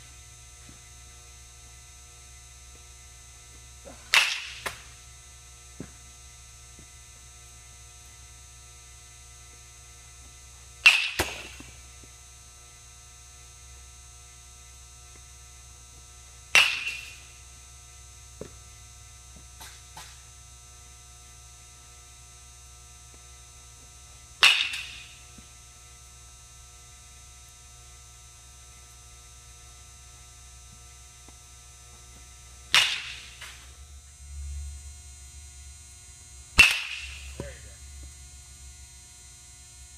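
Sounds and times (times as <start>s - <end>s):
low electrical hum: 0.0s - 39.9s
bat cracking balls: 3.5s - 5.1s, 10.8s - 11.9s, 16.5s - 17.4s, 19.4s - 20.3s, 24.4s - 25.5s, 32.0s - 33.8s, 36.5s - 37.8s.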